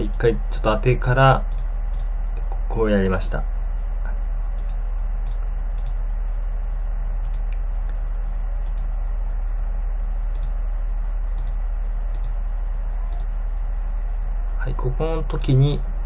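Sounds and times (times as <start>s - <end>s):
low electrical hum: 0.0s - 16.0s
computer mouse clicks: 1.5s - 2.1s, 4.6s - 6.0s, 7.2s - 8.0s, 8.6s - 8.9s, 10.3s - 10.6s, 11.3s - 12.4s, 13.1s - 13.3s.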